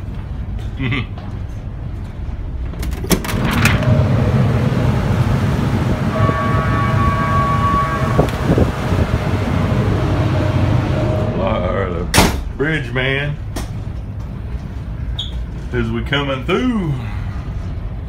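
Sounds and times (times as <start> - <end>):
diesel engines rumbling: 0.0 - 18.0
outdoor noise: 0.0 - 18.0
door clicking open: 2.7 - 3.8
steady tone: 3.5 - 12.1.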